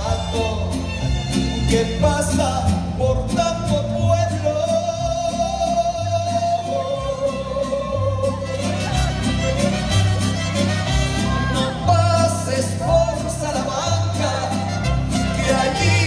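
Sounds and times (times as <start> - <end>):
man singing: 0.0 - 10.0, 10.7 - 16.0
mariachi band playing: 0.0 - 16.0
strummed guitar rhythm: 5.0 - 16.0.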